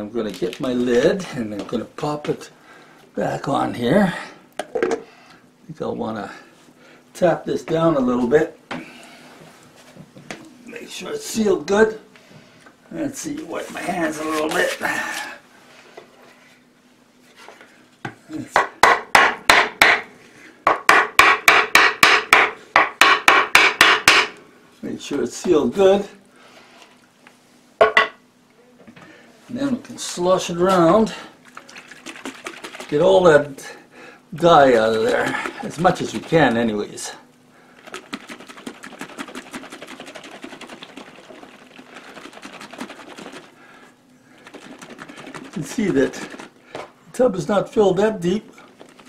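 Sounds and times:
mallet tapping on wooden board: 0:20.7 - 0:24.3.

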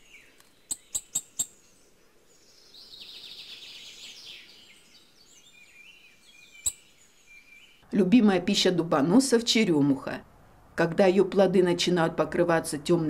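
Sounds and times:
bird ticking calls: 0:00.0 - 0:01.8, 0:06.4 - 0:07.5
faint bird twittering: 0:00.0 - 0:07.8.

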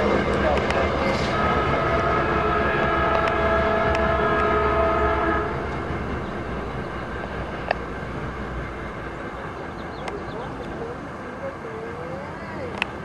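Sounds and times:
train rumbling: 0:00.0 - 0:13.0
train horn chord: 0:01.2 - 0:06.2.

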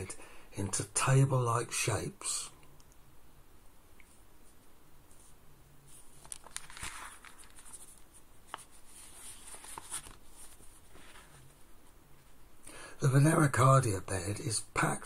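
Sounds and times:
soft clicks: 0:02.6 - 0:03.1
paper rustling: 0:05.1 - 0:12.4.

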